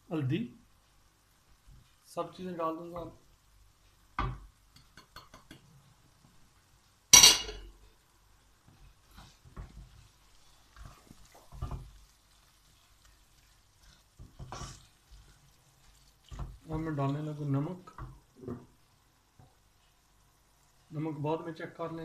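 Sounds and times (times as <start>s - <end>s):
spatula scraping frying pan: 8.8s - 17.2s.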